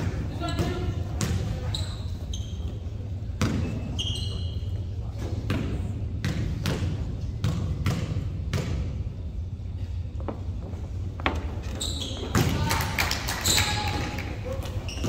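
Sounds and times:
basketball bouncing: 0:00.0 - 0:01.6, 0:03.4 - 0:03.8, 0:05.4 - 0:09.1
sneakers squeaking on court: 0:00.0 - 0:08.9, 0:10.2 - 0:12.6, 0:14.6 - 0:15.0.

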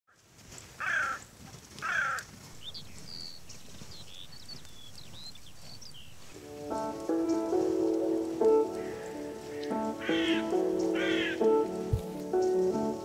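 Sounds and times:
small birds chirping: 0:00.5 - 0:13.0
harsh loud bird calls: 0:01.8 - 0:06.7, 0:08.7 - 0:11.7
music with held notes: 0:06.3 - 0:13.0.

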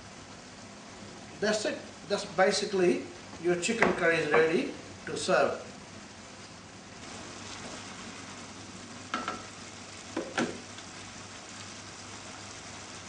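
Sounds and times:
gravy sizzling in a frying pan: 0:00.0 - 0:13.0
spoon knocking against pan: 0:09.1 - 0:09.5.

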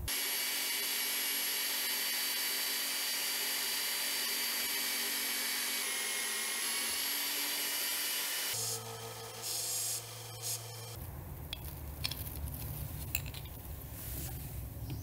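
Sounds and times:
belt sander grinding screw: 0:00.1 - 0:11.0.

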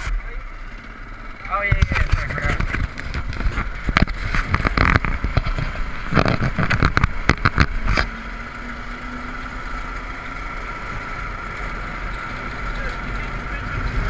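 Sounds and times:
go-kart engine running: 0:00.0 - 0:14.0
knocks and bumps on gravel: 0:01.7 - 0:08.1.

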